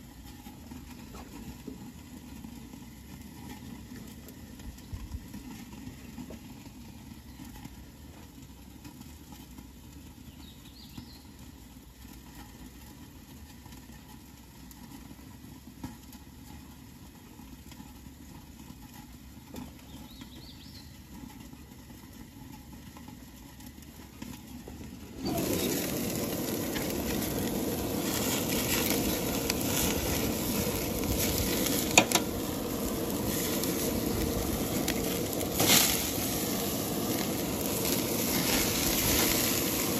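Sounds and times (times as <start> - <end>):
steaks sizzling on gas grill: 0.0 - 8.8, 24.2 - 39.9
faint steady hiss: 23.6 - 39.9
tongs clicking on grate: 31.9 - 32.4.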